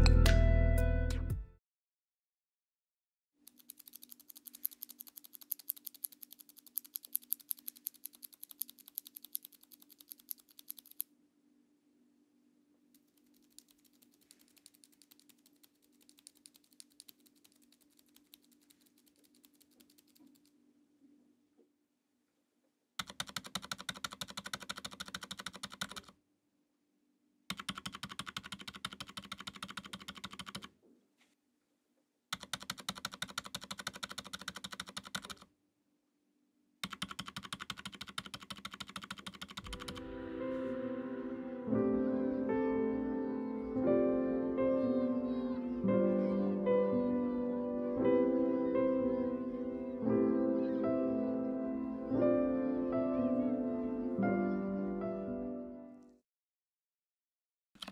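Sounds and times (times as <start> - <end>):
typing on keyboard: 3.5 - 11.1, 13.0 - 20.5, 23.0 - 26.2, 27.5 - 30.7, 32.3 - 35.5, 36.8 - 40.1.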